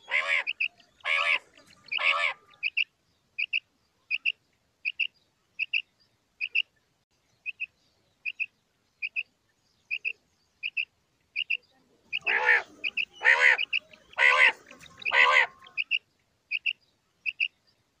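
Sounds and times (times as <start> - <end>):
harsh quail calls: 0.0 - 5.8, 6.4 - 6.7, 9.9 - 17.6
quail calling: 0.0 - 5.8, 9.9 - 17.5.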